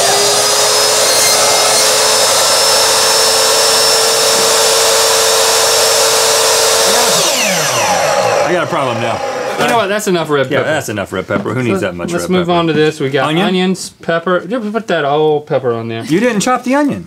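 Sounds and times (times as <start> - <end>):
miter saw whining: 0.0 - 10.0.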